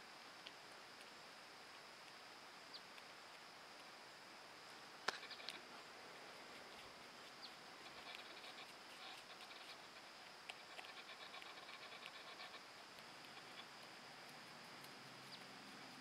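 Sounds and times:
porcupine gnawing an apple: 0:05.1 - 0:16.0.

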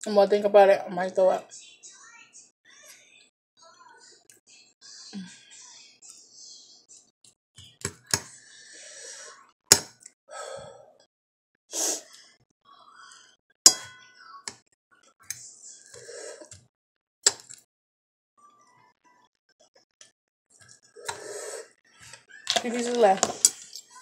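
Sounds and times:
metal fork clinking on plate: 0:13.7 - 0:14.1.

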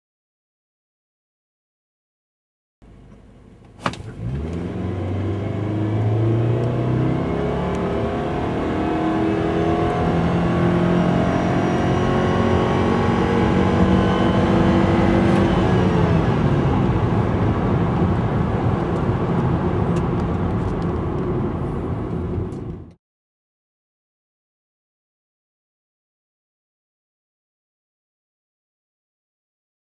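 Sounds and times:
road noise: 0:02.8 - 0:23.0
car engine revving: 0:03.6 - 0:22.6.

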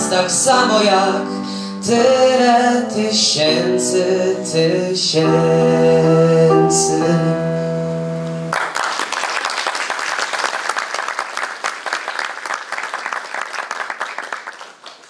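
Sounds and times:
audience applause: 0:08.5 - 0:15.0.

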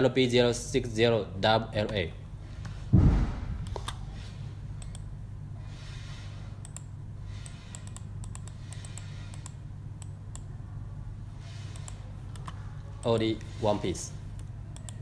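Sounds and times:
steady low hum: 0:00.0 - 0:15.0
computer mouse clicking: 0:03.6 - 0:04.0, 0:04.8 - 0:05.1, 0:06.6 - 0:10.5, 0:11.6 - 0:13.6, 0:14.3 - 0:15.0.

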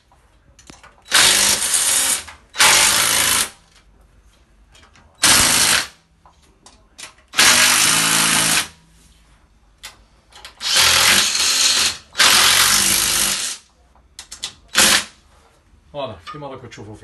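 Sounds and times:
cordless drill driving screws: 0:01.1 - 0:03.5, 0:05.2 - 0:05.9, 0:07.4 - 0:08.7, 0:10.6 - 0:13.6.

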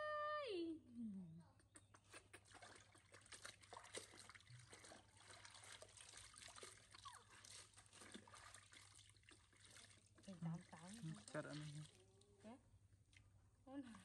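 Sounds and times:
water splashing in basin: 0:02.3 - 0:12.3
water running off wet cloth: 0:02.4 - 0:12.2.

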